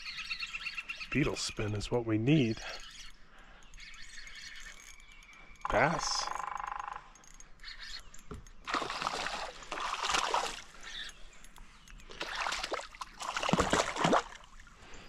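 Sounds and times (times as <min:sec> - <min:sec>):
fish splashing and thrashing: 0:07.2 - 0:14.9.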